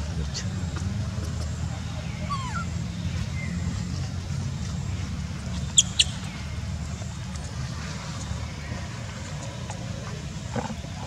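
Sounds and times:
low background hum: 0.0s - 11.0s
baby monkey squeaking: 2.2s - 2.7s, 5.8s - 6.2s.

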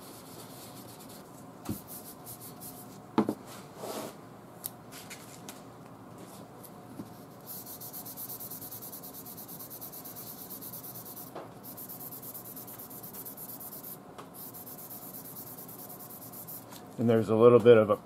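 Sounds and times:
sandpaper rubbing car paint: 7.4s - 16.6s.

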